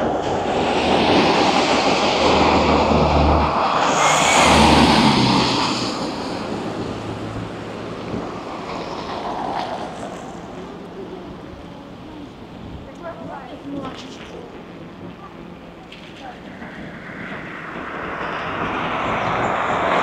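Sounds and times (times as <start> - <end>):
vehicle passing by: 0.0 - 11.4, 16.5 - 20.0.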